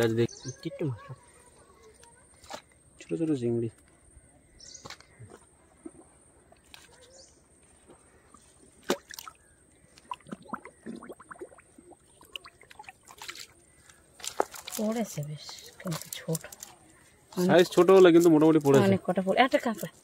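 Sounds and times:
water dripping and splashing: 0:07.8 - 0:15.0.

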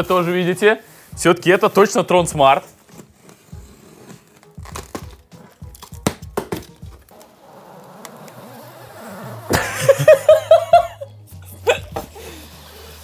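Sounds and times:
plastic wrapping rustling: 0:00.0 - 0:08.2.

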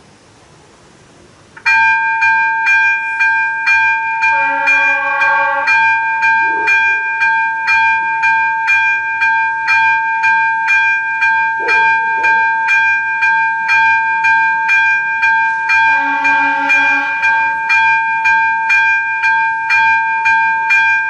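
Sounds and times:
low held tone: 0:01.7 - 0:08.5, 0:11.5 - 0:14.5, 0:15.4 - 0:18.3
level crossing bell ringing: 0:01.7 - 0:21.0.

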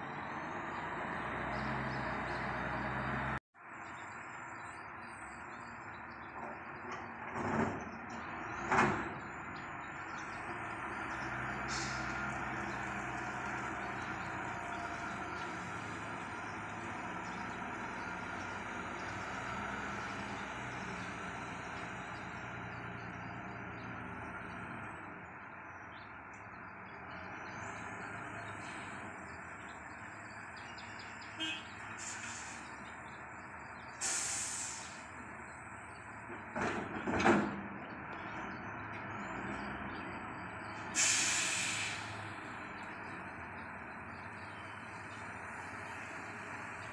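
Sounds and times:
birds chirping: 0:00.0 - 0:36.5, 0:37.8 - 0:46.9
diesel engine drone: 0:00.0 - 0:46.9
short hissing bursts: 0:34.0 - 0:35.0, 0:41.0 - 0:42.1.

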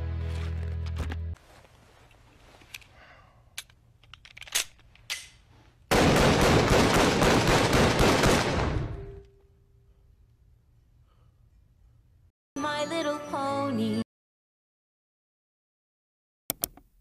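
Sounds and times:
handgun rapid fire: 0:05.9 - 0:08.8.

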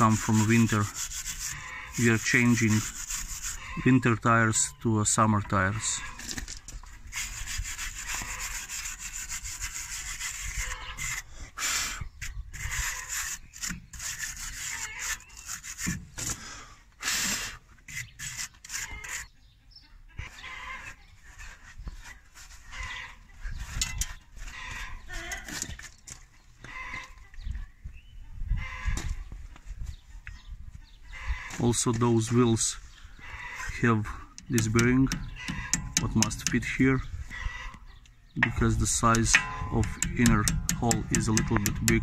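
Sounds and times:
wire brush scraping metal: 0:00.0 - 0:04.7, 0:05.7 - 0:16.3, 0:17.1 - 0:19.3, 0:20.4 - 0:25.8, 0:31.3 - 0:37.7, 0:38.4 - 0:42.0.

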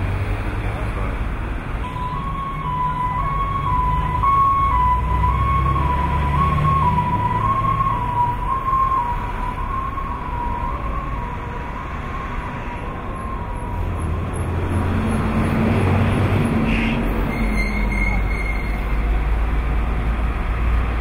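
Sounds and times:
urban traffic noise: 0:00.0 - 0:21.0
distant wavering siren: 0:01.8 - 0:15.3.

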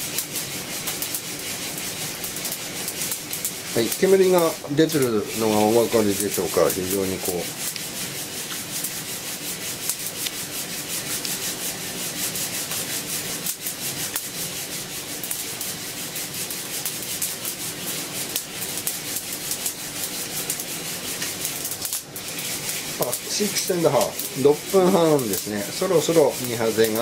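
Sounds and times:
coffee beans rattling in roaster: 0:00.0 - 0:27.0.

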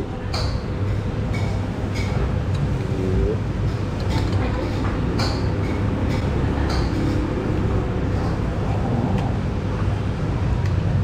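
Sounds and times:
low restaurant room rumble: 0:00.0 - 0:11.0
faint voices: 0:02.0 - 0:10.1.

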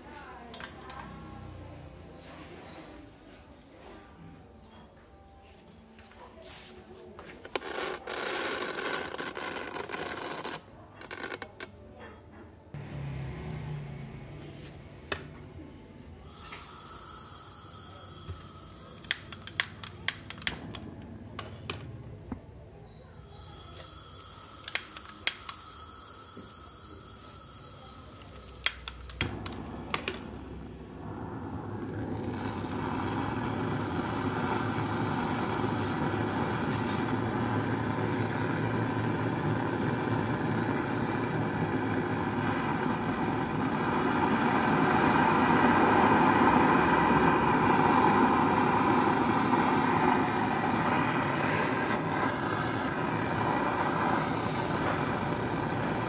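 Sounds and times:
torch flame hissing: 0:16.2 - 0:21.2, 0:23.3 - 0:56.0
torch igniter clicks: 0:19.0 - 0:21.5, 0:24.6 - 0:25.7, 0:28.2 - 0:30.4.

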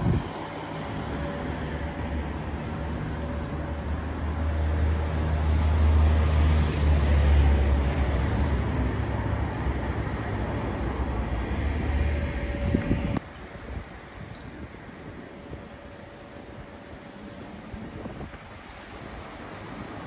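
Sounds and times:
vehicle engine passing by: 0:00.0 - 0:13.2
street traffic: 0:00.0 - 0:20.0.

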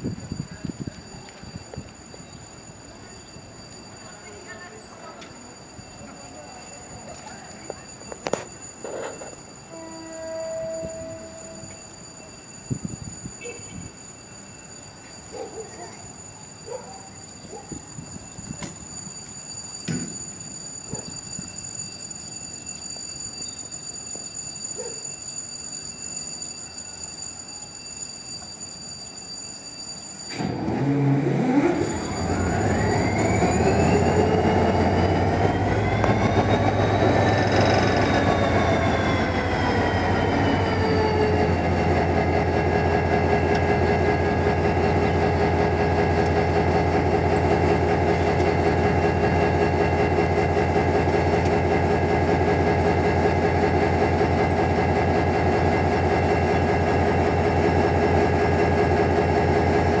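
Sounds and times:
locomotive diesel engine starting: 0:30.3 - 1:00.0.

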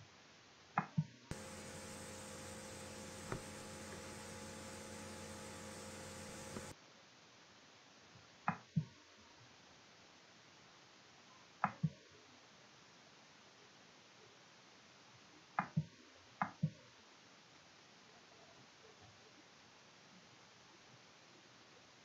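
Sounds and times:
computer mouse clicks: 0:01.3 - 0:06.7
electrical mains hum with hiss: 0:01.3 - 0:08.0.

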